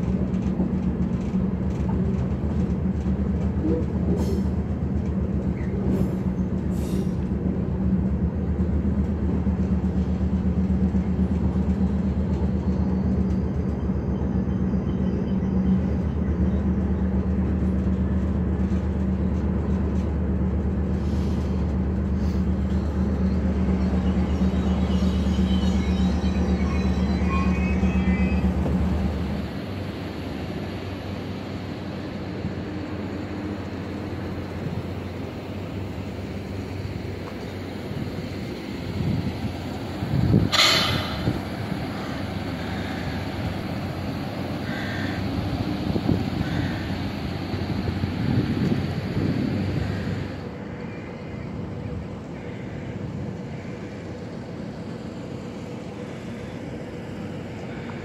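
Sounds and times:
diesel engine drone: 0.0 - 58.0
rail running noise: 0.0 - 58.0
faint high squeals: 22.7 - 29.1.

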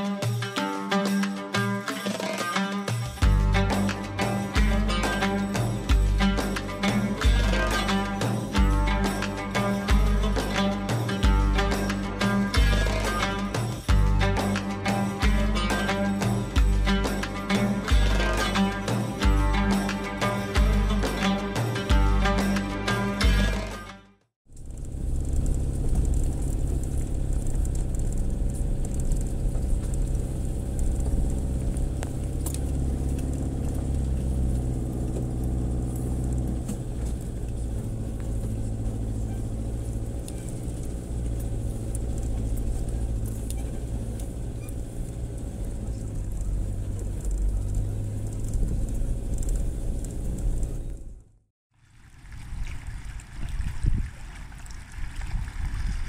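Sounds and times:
wind: 1.5 - 56.0
water: 24.5 - 49.7, 51.7 - 56.0
truck engine running under load: 24.5 - 51.3.

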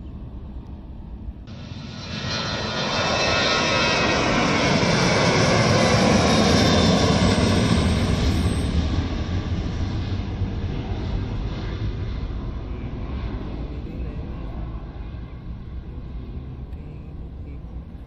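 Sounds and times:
jet engines at takeoff: 0.0 - 18.0.

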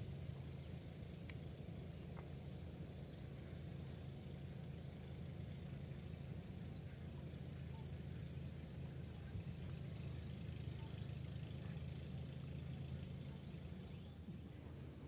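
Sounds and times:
faint chirps: 0.1 - 15.0.

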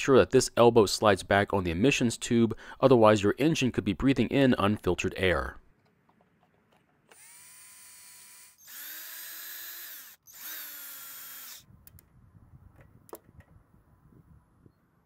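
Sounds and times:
cordless drill motor whine: 7.1 - 11.7.

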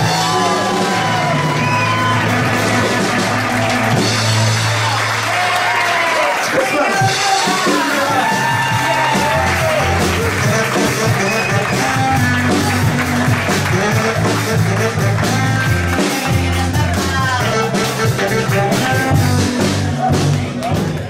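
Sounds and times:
electric bass: 0.0 - 5.8, 7.0 - 21.0
live pop-rock band: 0.0 - 21.0.

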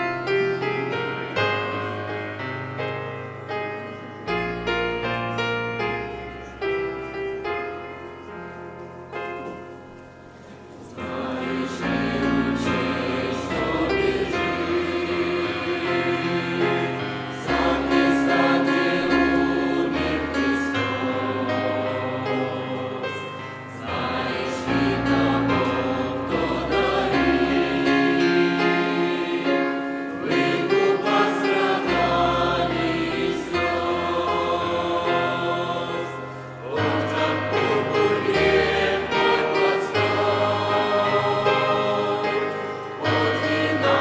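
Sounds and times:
choir singing a hymn: 0.0 - 9.6, 10.3 - 44.0
piano: 0.0 - 44.0.

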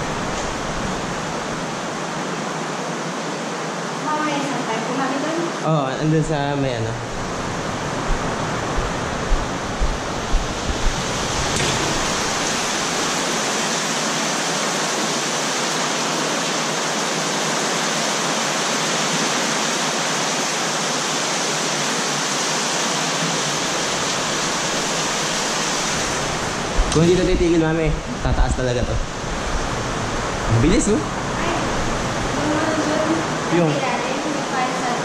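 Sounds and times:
heavy rain pouring: 0.0 - 35.0
soft low knocks: 7.0 - 13.1.

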